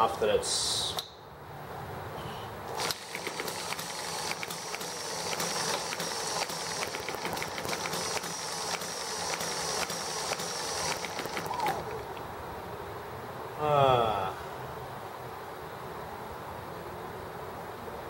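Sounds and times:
steady hiss: 1.6 - 18.0
engine pull start: 2.7 - 12.1
small engine firing clicks: 2.7 - 12.3.

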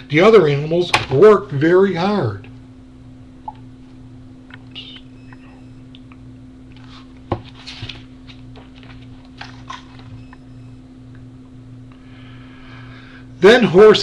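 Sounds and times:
steady low hum: 0.0 - 14.0
paper rustling: 6.8 - 10.1.

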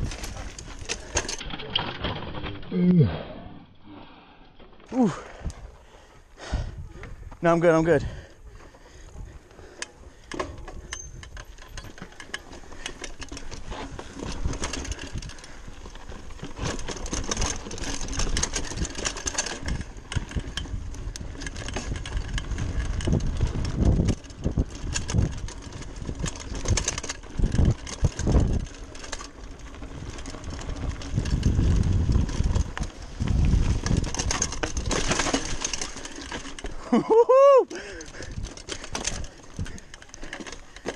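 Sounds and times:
tyres rolling on dirt and stones: 0.0 - 2.8, 4.6 - 40.9
bike rattling and clicking: 0.0 - 40.9
wind rumble on microphone: 13.6 - 29.0, 29.6 - 35.7.

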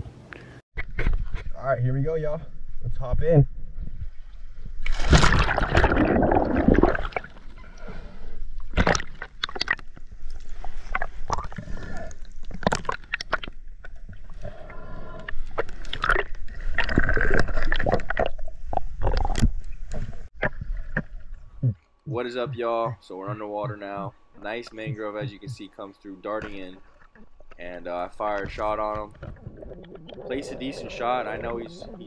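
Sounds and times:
underwater gurgling and bubbling: 5.2 - 8.1, 26.6 - 32.0
underwater clicks and knocks: 28.2 - 30.4.

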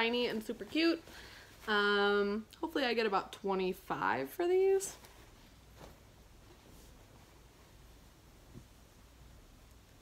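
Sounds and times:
shirt handling sound: 4.9 - 9.1.

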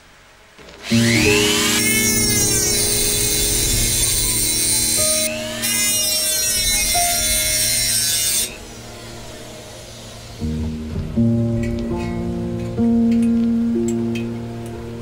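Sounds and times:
rotary tool grinding sheet steel: 0.8 - 10.4.

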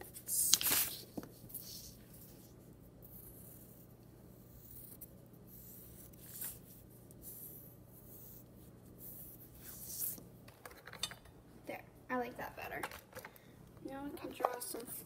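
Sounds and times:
pencil scratching on paper: 1.5 - 10.2.

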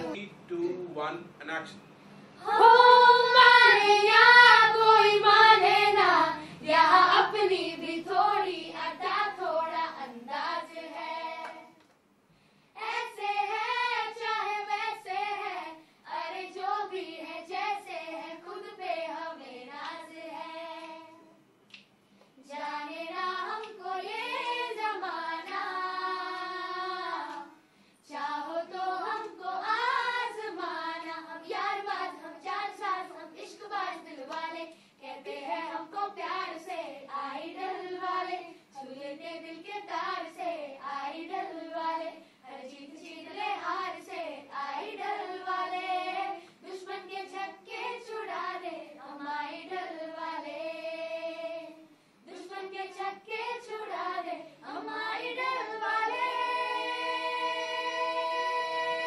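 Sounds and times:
children and woman singing: 2.4 - 11.8, 22.4 - 59.0.

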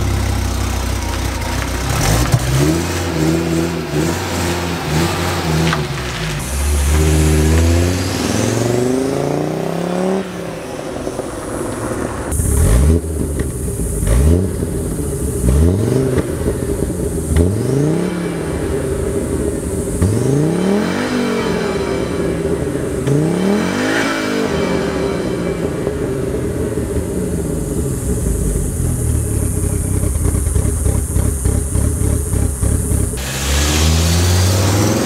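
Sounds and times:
lumpy engine idle: 0.0 - 6.7, 25.4 - 33.4
car engine revving: 0.0 - 35.0.

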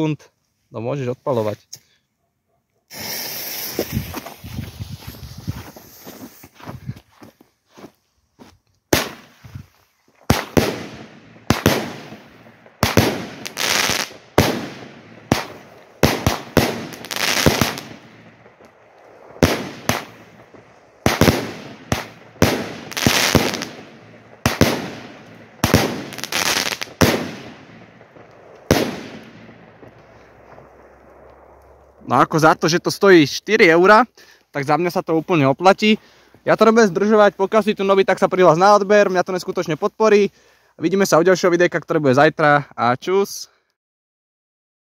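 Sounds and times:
firework launch reports: 2.9 - 4.3, 10.3 - 33.9
firework aerial bursts: 2.9 - 6.4, 8.9 - 32.1
firework hiss: 2.9 - 6.4, 10.3 - 28.0.

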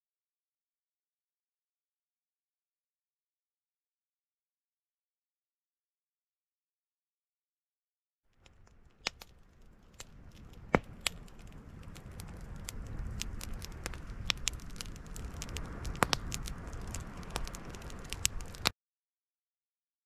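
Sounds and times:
campfire crackling and popping: 8.3 - 18.7
low steady rumble: 9.6 - 18.7.

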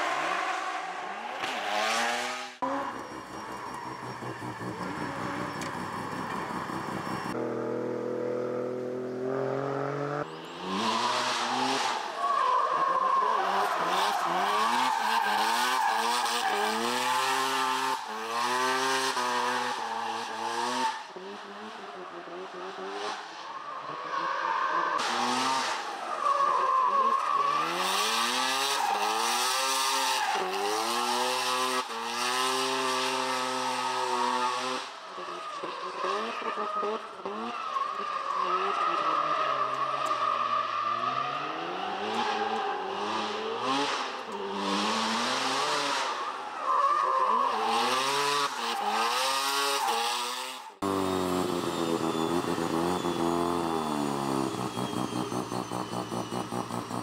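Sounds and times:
car engine revving: 0.0 - 12.1, 47.4 - 57.0.

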